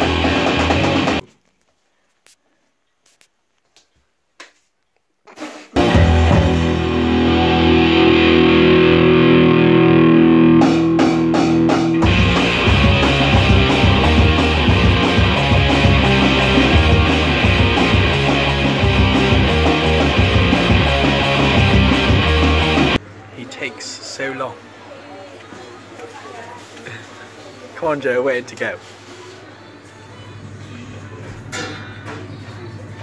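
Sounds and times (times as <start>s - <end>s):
electric guitar chord: 0.0s - 1.2s, 5.8s - 23.0s
rock band playing: 0.0s - 1.2s, 5.8s - 23.0s
drum hits: 5.8s - 7.8s, 10.6s - 23.0s.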